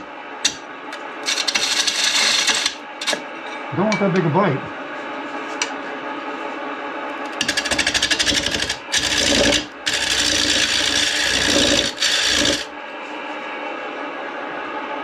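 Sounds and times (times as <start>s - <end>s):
gouge cutting wood on lathe: 1.2s - 2.8s, 7.4s - 12.7s
lathe motor hum: 7.4s - 12.7s.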